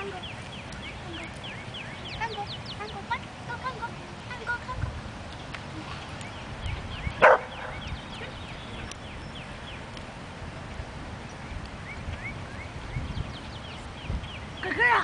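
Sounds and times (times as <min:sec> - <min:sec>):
dog barking: 0:07.2 - 0:07.8.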